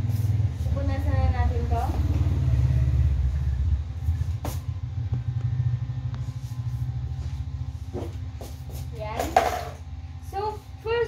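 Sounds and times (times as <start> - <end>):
motor running with pulsing rumble: 0.0 - 11.0.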